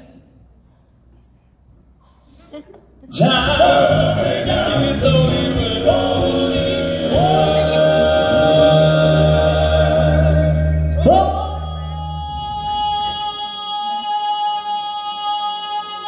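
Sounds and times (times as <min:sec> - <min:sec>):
male quartet singing in harmony: 0:03.1 - 0:16.0
live band playing: 0:03.2 - 0:13.2.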